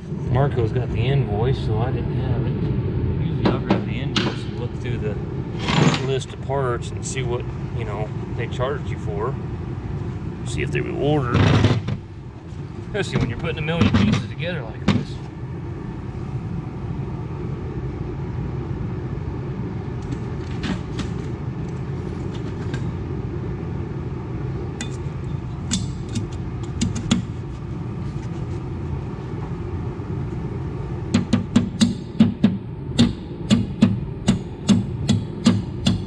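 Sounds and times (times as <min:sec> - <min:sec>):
low shop rumble: 0:00.0 - 0:36.0
mallet tapping on metal: 0:31.1 - 0:36.0.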